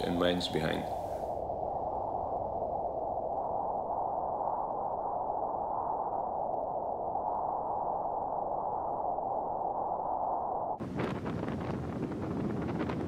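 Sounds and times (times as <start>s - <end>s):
muffled wind noise: 0.0s - 13.0s.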